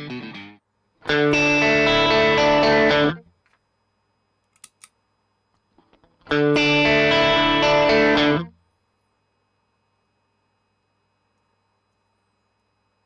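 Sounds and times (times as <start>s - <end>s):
electric guitar chords ringing: 0.0s - 3.2s, 6.2s - 8.5s.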